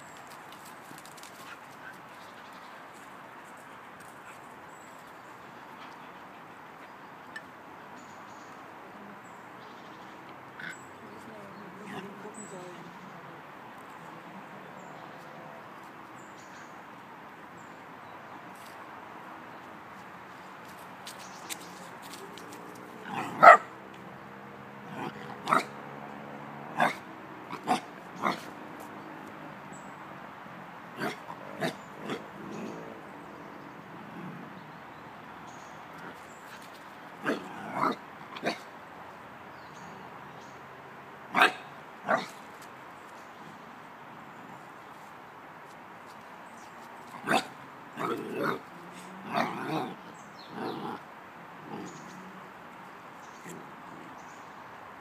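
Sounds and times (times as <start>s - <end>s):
dog barking: 23.1s - 23.7s, 25.0s - 25.7s, 26.8s - 27.0s, 41.3s - 42.3s, 47.2s - 48.6s.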